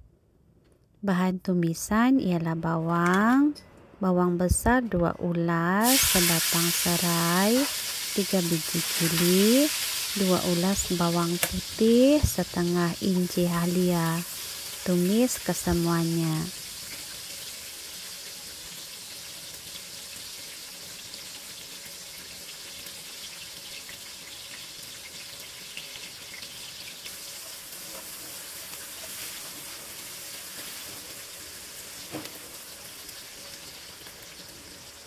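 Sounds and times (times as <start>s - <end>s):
food sizzling in hot oil: 5.8s - 35.0s.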